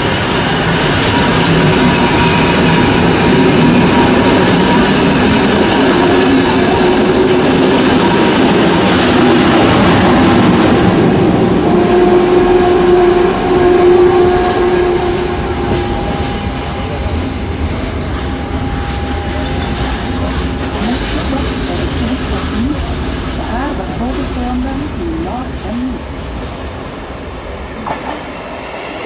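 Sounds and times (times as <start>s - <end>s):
electric train running past: 0.0s - 29.0s
train wheels squealing: 0.9s - 12.8s.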